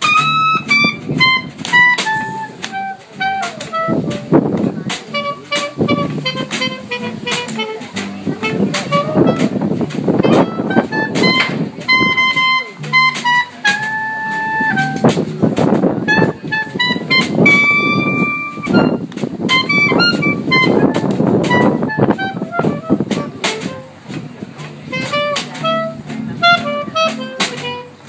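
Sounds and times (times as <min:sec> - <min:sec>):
clarinet melody: 0:00.0 - 0:28.0
upright bass: 0:00.0 - 0:28.0
drums with cymbal strokes: 0:22.8 - 0:28.0.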